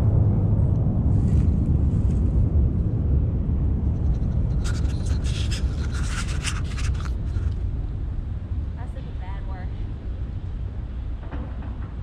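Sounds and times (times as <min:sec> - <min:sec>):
deep steady rumble: 0:00.0 - 0:12.0
camera handling scratching: 0:04.6 - 0:07.6.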